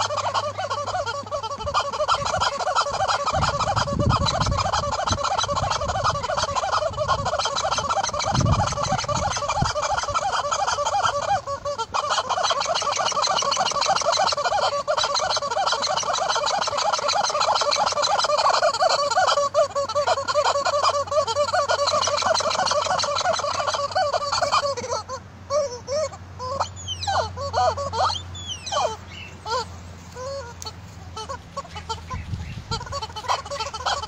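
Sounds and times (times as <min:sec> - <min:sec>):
rubber chicken toy squawking: 0:00.0 - 0:34.0.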